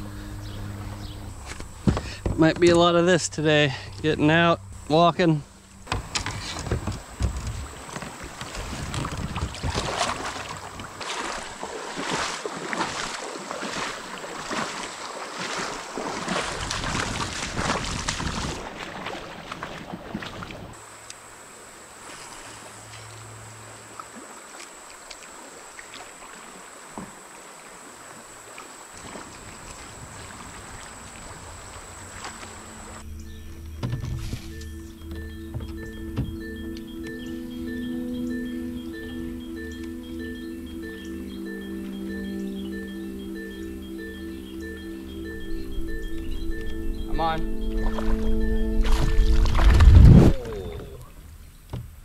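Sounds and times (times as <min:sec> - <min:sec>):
rhythmic splashing of river water: 0:00.0 - 0:52.0
soft rush of water: 0:04.9 - 0:33.1.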